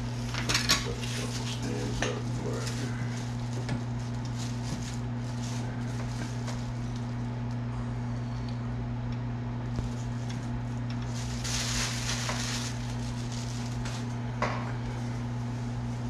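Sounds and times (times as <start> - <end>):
low electrical hum: 0.0 - 16.0
plastic bag crinkling: 0.2 - 7.2, 9.7 - 14.2.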